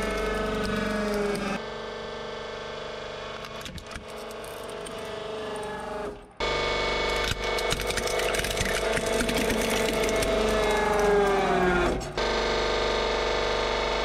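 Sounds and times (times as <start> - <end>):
hydraulic pump humming: 3.4 - 12.5
plastic cracking and crunching: 7.2 - 12.1.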